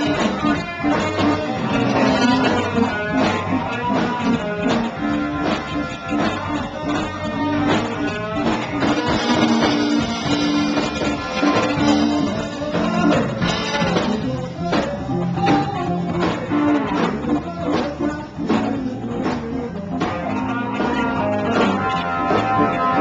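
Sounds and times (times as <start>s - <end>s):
blues-rock band playing: 0.0s - 23.0s.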